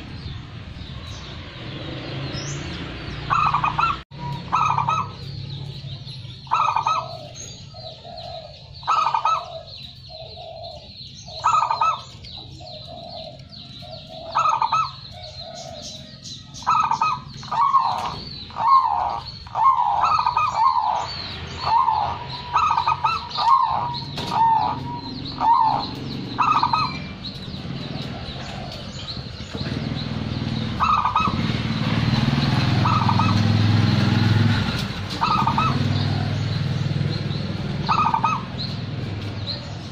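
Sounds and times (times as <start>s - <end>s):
dove cooing: 3.3s - 39.9s.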